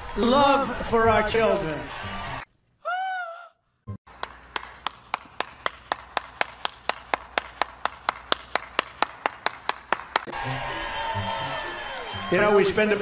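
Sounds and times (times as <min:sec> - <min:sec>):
woman screaming: 0:02.8 - 0:03.6
person clapping slowly: 0:04.2 - 0:10.3.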